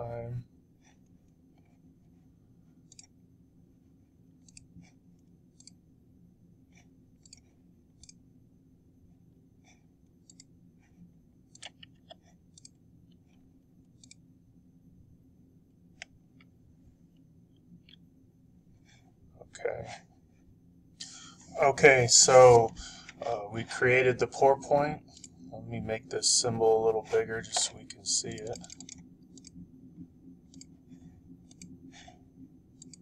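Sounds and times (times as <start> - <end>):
low steady hum: 0.0 - 33.0
faint computer mouse clicks: 2.9 - 3.2, 4.4 - 4.9, 7.2 - 8.2, 14.0 - 14.2, 31.4 - 31.8, 32.8 - 33.0.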